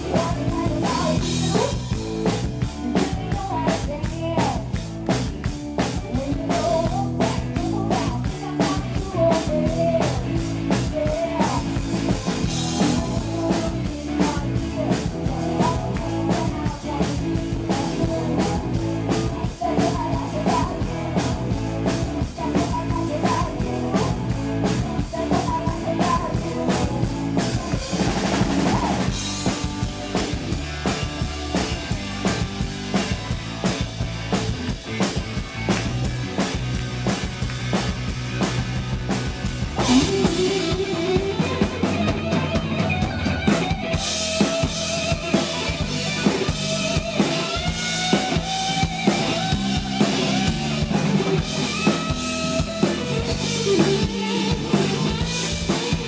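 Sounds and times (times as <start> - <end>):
drum kit beat: 0.0 - 56.0
live rock band playing: 0.0 - 56.0.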